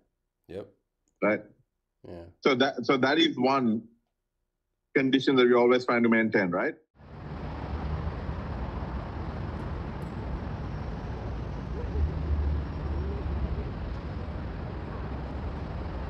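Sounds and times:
low city rumble: 0:07.0 - 0:16.0.

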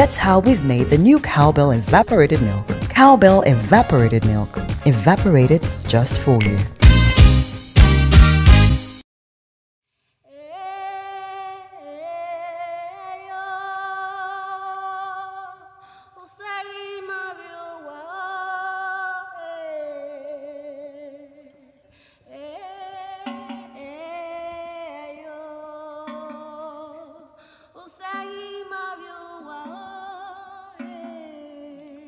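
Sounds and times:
woman singing wordless held notes: 0:22.3 - 0:27.2, 0:27.8 - 0:32.0.

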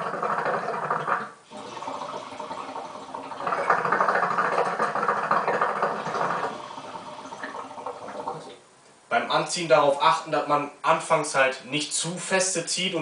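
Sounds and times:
water bubbling in hookah: 0:00.0 - 0:08.6.

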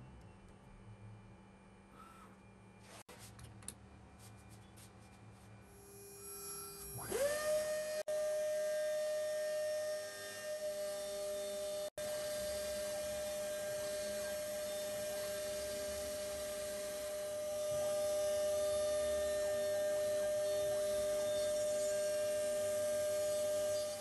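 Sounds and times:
router spindle whine: 0:05.7 - 0:24.0.

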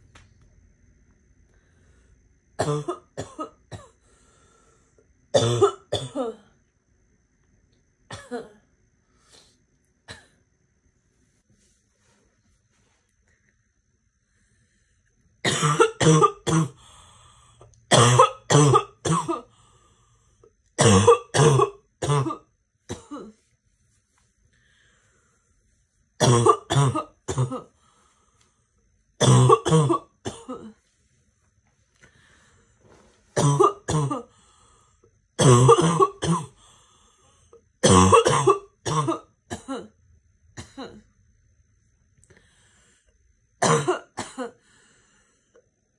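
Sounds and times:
girl's barking cough: 0:02.6 - 0:04.0, 0:05.3 - 0:06.4, 0:08.1 - 0:08.6, 0:15.4 - 0:16.8, 0:17.9 - 0:19.5, 0:20.8 - 0:23.4, 0:26.2 - 0:27.7, 0:29.2 - 0:30.8, 0:33.4 - 0:34.3, 0:35.4 - 0:36.6, 0:37.8 - 0:40.0, 0:40.6 - 0:41.1, 0:43.6 - 0:44.6.

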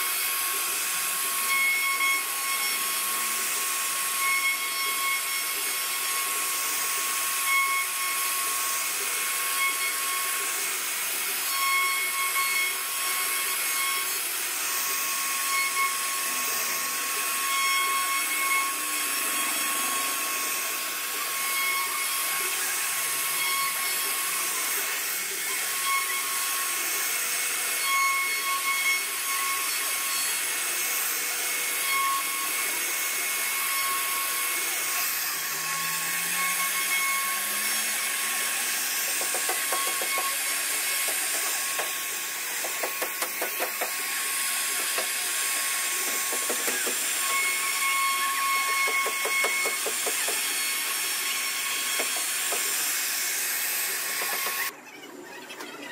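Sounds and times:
router spindle whine carving wood: 0:00.0 - 0:55.9.

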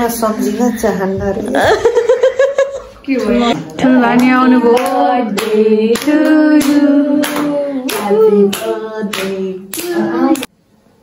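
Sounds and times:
people singing long notes: 0:03.5 - 0:10.5
hand claps: 0:04.2 - 0:10.5.

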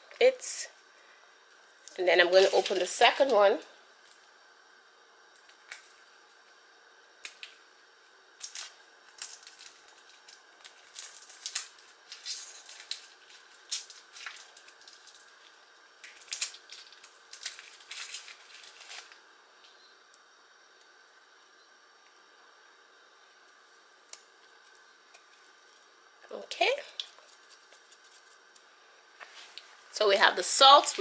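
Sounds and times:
foil wrapper crinkling: 0:01.8 - 0:03.4, 0:08.4 - 0:19.3, 0:26.8 - 0:28.7.

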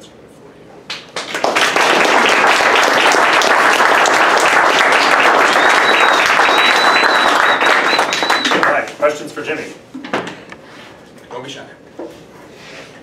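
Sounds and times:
audience applauding: 0:01.1 - 0:08.8
thin high whistle: 0:05.4 - 0:08.6.

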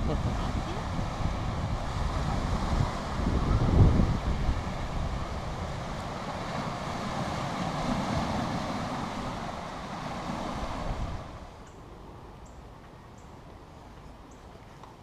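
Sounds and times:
waves washing over boulders: 0:00.0 - 0:11.6
wind rumbling on microphone: 0:00.0 - 0:12.4.

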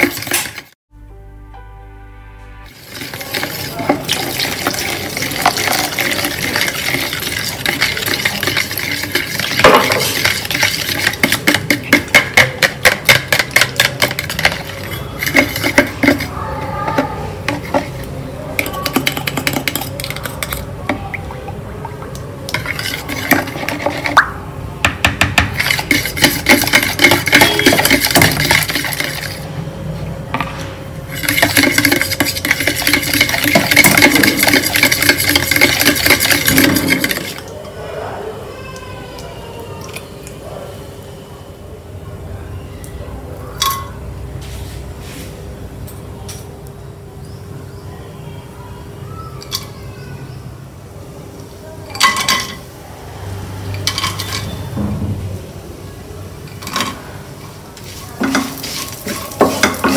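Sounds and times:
fork whisking in plastic bowl: 0:00.0 - 0:00.7, 0:02.8 - 0:21.1, 0:22.5 - 0:24.2, 0:25.4 - 0:29.4, 0:31.1 - 0:37.5, 0:57.8 - 0:59.9.

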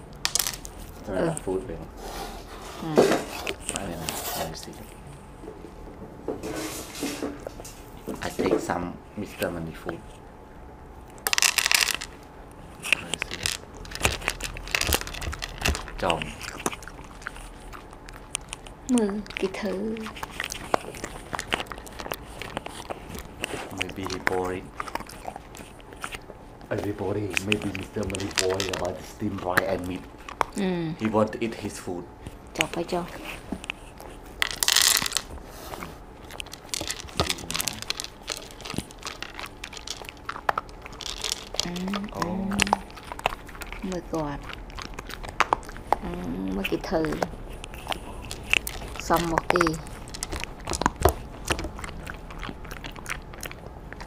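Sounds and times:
meat tearing crackle: 0:11.1 - 0:35.3, 0:36.0 - 0:54.0.

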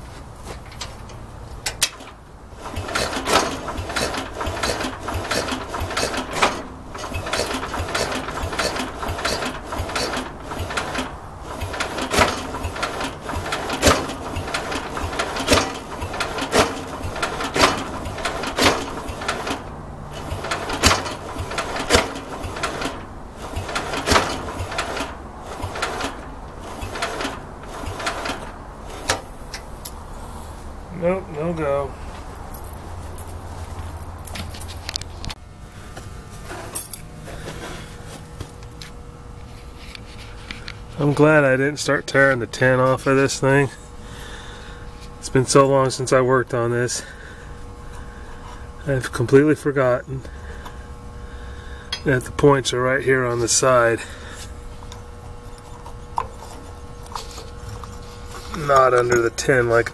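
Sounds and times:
engine cranking with knocks: 0:00.6 - 0:30.2, 0:51.9 - 0:59.9.

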